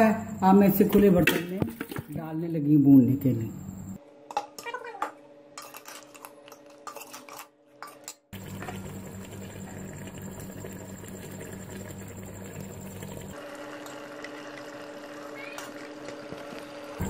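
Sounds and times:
metal spoon scraping pot: 5.6 - 8.2.

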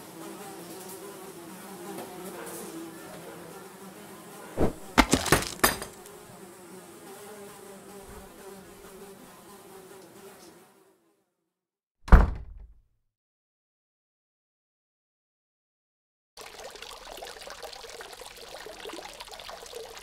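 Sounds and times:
cartoon flies buzzing: 4.2 - 5.1
sharp smacks: 4.6 - 5.7
heavy thump: 4.6 - 5.9, 12.1 - 12.7.

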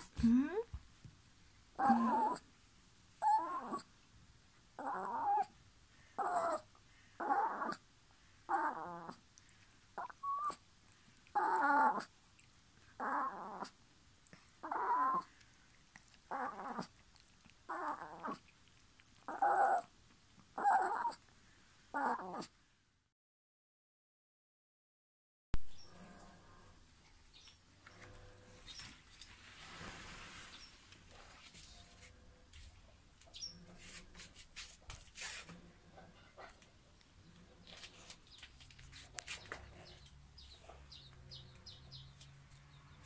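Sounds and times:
dog whining: 1.8 - 2.4, 3.2 - 3.9, 4.8 - 5.6, 6.2 - 7.8, 8.5 - 9.2, 10.0 - 10.6, 11.3 - 12.1, 13.0 - 13.8, 14.6 - 15.3, 16.0 - 17.0, 17.7 - 18.4, 19.2 - 19.9, 20.6 - 21.2, 22.0 - 22.5.

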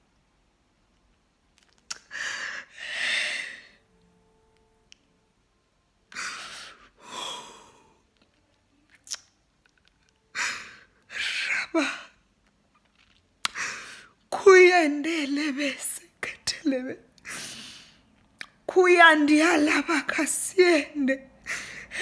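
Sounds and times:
sharp mouth clicks: 1.6 - 2.1, 8.9 - 9.4
woman breathing heavily: 2.1 - 3.8, 6.2 - 8.0, 10.4 - 11.8, 21.4 - 22.0.

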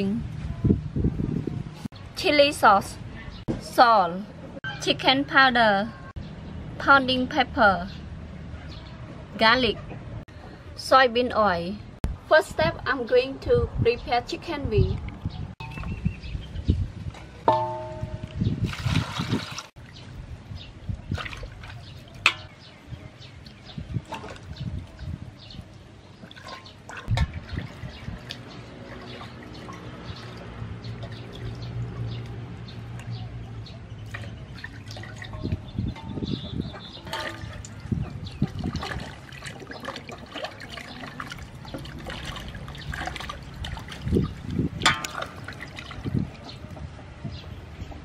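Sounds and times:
water splashing and sloshing: 15.0 - 48.0
water pouring into a basin: 38.4 - 44.5.

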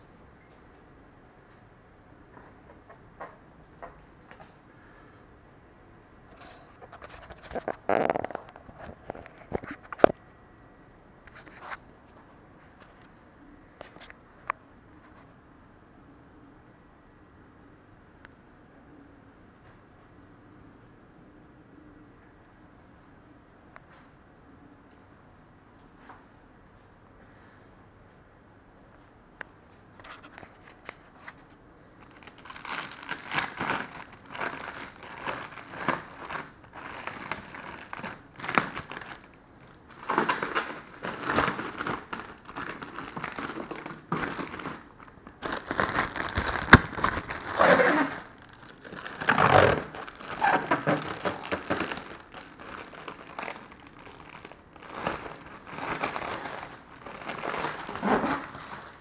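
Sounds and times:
plastic bag crinkling: 6.4 - 10.1, 32.0 - 59.0.

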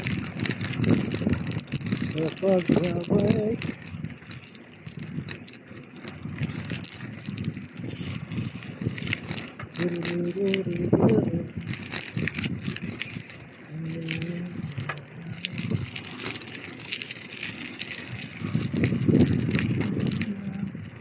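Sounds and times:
bicycle clicks and rattles: 0.0 - 21.0.

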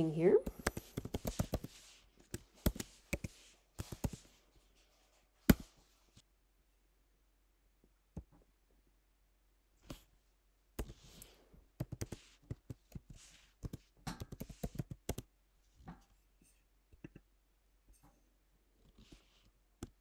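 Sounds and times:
computer keyboard typing: 0.4 - 4.3, 11.8 - 15.3.

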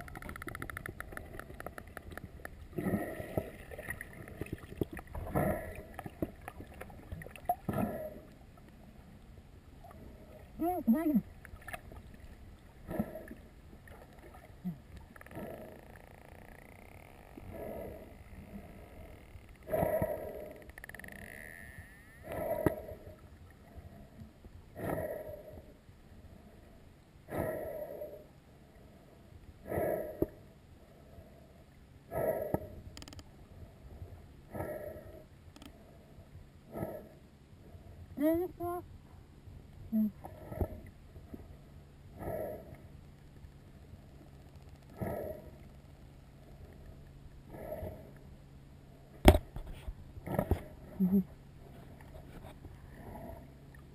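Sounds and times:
faint clicks: 0.0 - 2.6, 19.2 - 21.4, 32.5 - 33.3, 35.5 - 35.8, 44.2 - 45.0
sharp clicks: 0.0 - 2.6, 32.9 - 33.3
underwater water noise: 0.0 - 38.1, 38.9 - 53.9.

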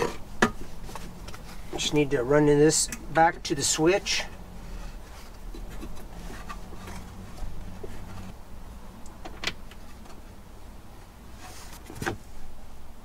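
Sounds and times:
cable and carpet rustling: 0.0 - 8.4
steady low hum: 0.0 - 13.0.

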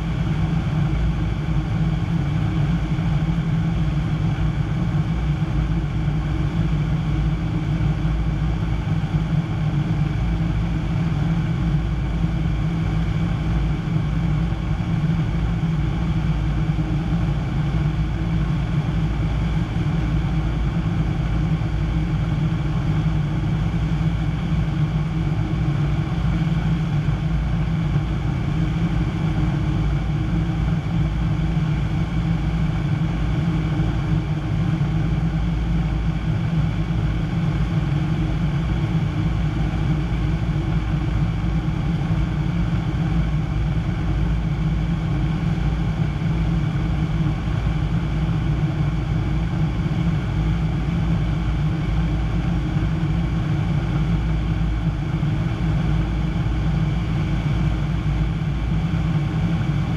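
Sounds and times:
aircraft engine and propeller drone: 0.0 - 59.9.

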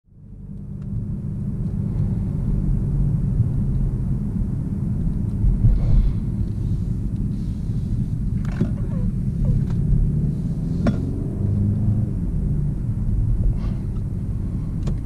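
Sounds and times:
road and tyre rumble: 0.0 - 15.0
car bumps: 10.8 - 11.1.

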